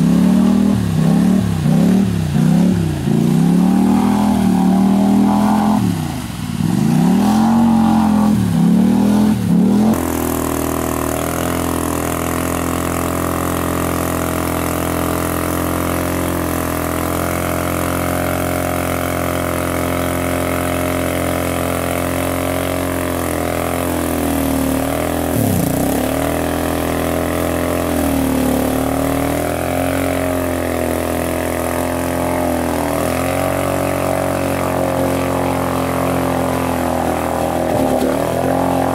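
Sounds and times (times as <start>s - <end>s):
quad bike engine revving: 0.0s - 38.9s.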